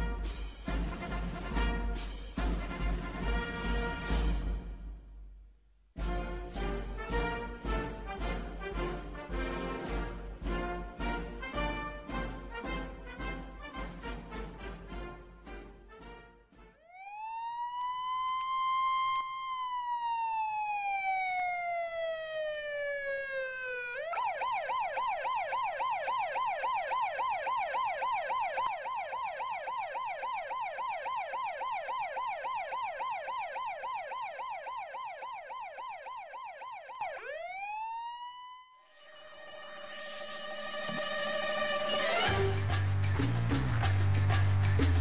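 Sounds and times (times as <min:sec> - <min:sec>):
police siren wailing and yelping: 0:16.8 - 0:39.4.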